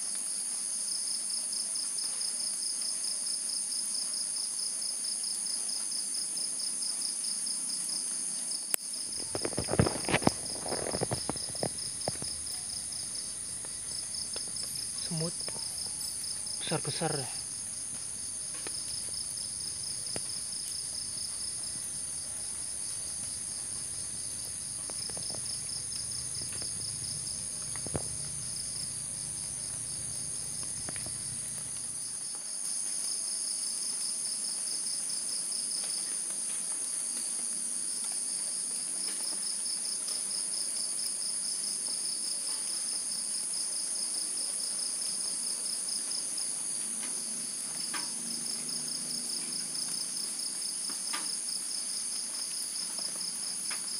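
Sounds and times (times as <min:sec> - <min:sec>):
crickets and insects chirping: 0:00.0 - 0:53.9
faint clicks: 0:08.7 - 0:31.9.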